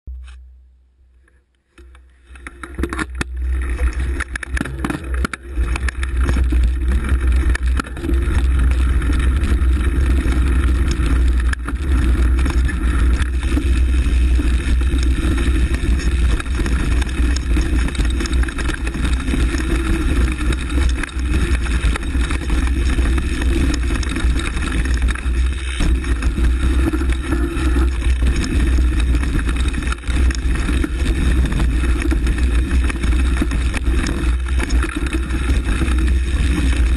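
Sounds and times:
mountain bike on dirt trail: 1.2s - 36.9s.

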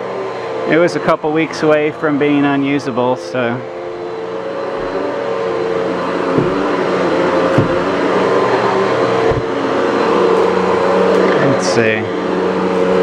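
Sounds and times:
vacuum cleaner running on carpet: 0.0s - 13.0s
low thumps: 4.6s - 8.5s, 9.2s - 9.6s.

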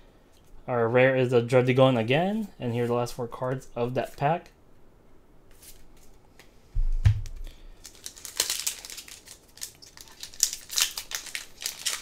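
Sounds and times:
low thump: 6.8s - 7.4s
sharp knock: 6.8s - 7.4s
foil wrapper tearing and crinkling: 7.8s - 12.0s.

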